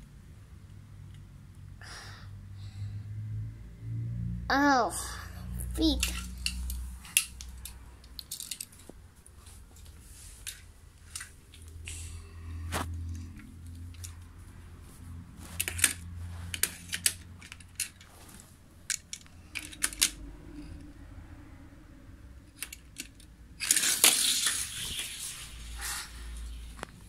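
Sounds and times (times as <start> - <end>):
toy cars clicking on plastic track: 5.9 - 8.8, 15.6 - 18.1, 18.9 - 20.2, 22.5 - 26.0.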